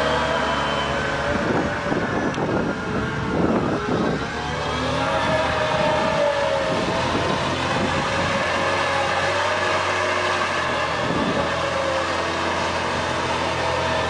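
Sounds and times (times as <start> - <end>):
engine whine: 0.0 - 14.0
wheel loader diesel engine: 0.0 - 14.0.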